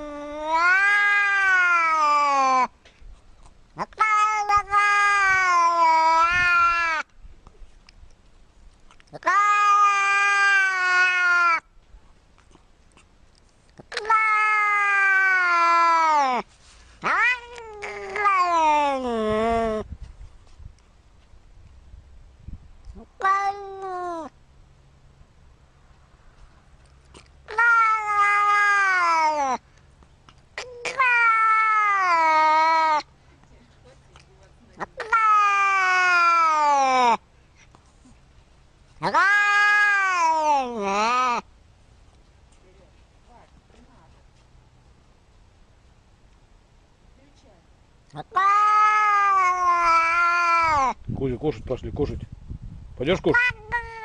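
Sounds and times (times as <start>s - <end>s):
cat meowing: 0.0s - 2.7s, 3.8s - 7.0s, 9.1s - 11.6s, 13.9s - 16.4s, 17.0s - 19.8s, 23.1s - 24.3s, 27.5s - 29.6s, 30.6s - 33.1s, 34.8s - 37.2s, 39.0s - 41.4s, 48.2s - 51.0s, 53.3s - 54.0s.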